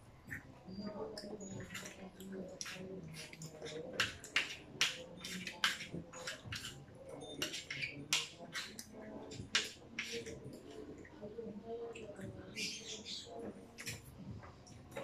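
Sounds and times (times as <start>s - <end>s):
chewing: 0.3s - 12.6s
plastic cutlery scraping plates: 1.4s - 10.4s.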